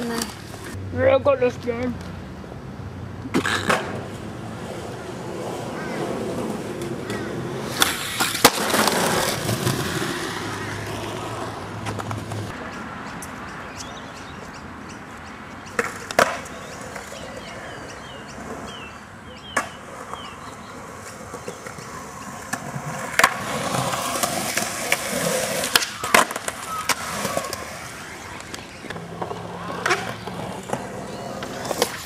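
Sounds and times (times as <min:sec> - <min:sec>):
skateboard wheels rolling on concrete: 0:00.0 - 0:32.0
skateboard clacks: 0:03.3 - 0:12.6, 0:15.7 - 0:18.6, 0:19.5 - 0:32.0.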